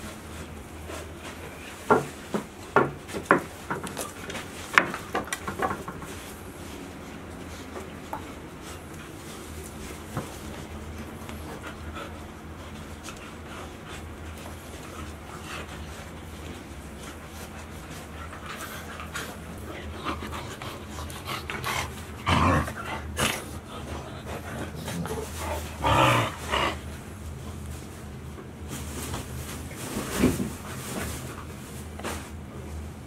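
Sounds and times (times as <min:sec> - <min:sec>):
rustling: 0:12.6 - 0:32.9.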